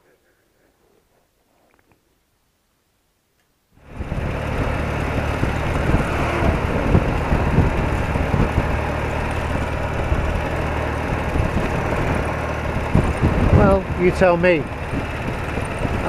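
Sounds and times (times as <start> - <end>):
motorcycle engine running: 3.8 - 16.0.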